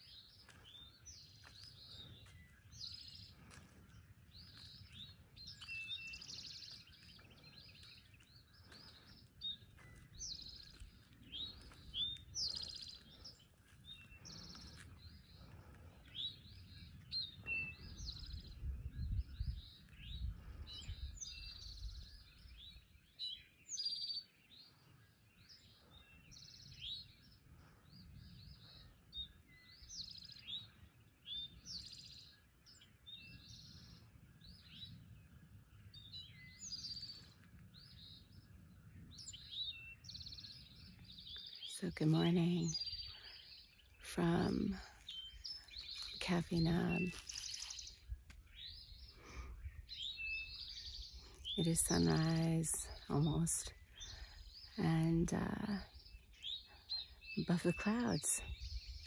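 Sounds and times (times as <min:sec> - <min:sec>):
songbirds chirping: 0:00.0 - 0:59.0.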